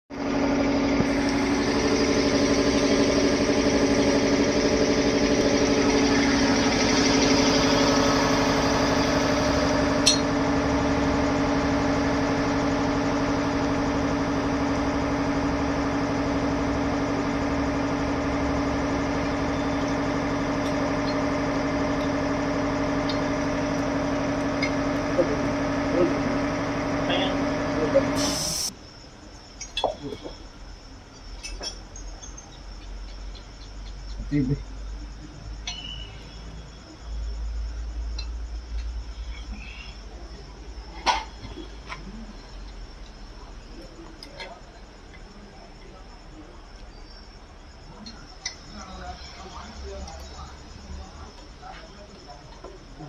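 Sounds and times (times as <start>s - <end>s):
machine humming: 0.1s - 31.0s.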